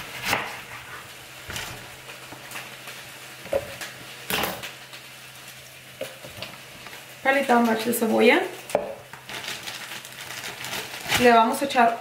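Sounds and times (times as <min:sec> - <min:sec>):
butter sizzling in frying pan: 0:00.0 - 0:11.8
knife cutting onion on board: 0:00.2 - 0:00.9.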